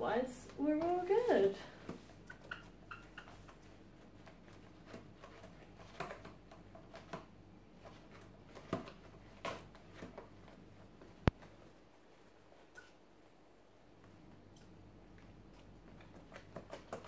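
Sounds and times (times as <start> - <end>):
fabric puppet rustling: 0.4 - 2.2.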